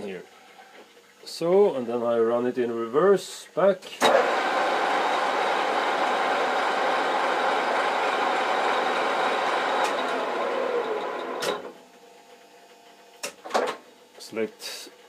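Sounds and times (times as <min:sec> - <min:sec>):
metal lathe running: 0:04.0 - 0:11.8
lathe clicks: 0:08.3 - 0:11.7.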